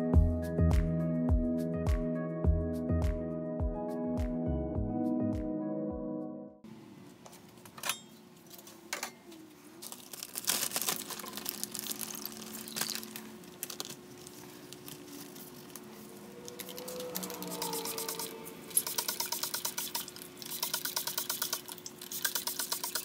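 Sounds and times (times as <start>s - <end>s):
plastic bag crinkling: 9.8s - 17.6s.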